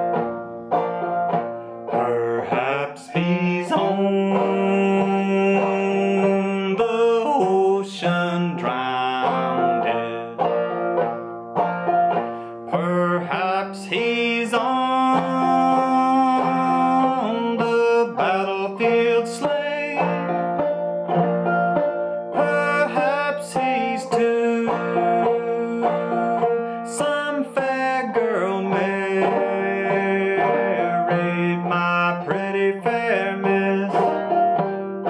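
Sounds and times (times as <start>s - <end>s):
banjo plucked and brushed: 0.0s - 35.0s
man singing: 1.9s - 10.7s, 12.6s - 20.3s, 22.3s - 35.0s.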